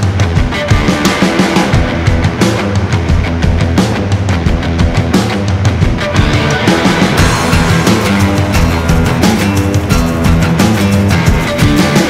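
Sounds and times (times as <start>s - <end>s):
hard-driving rock music: 0.0s - 12.0s.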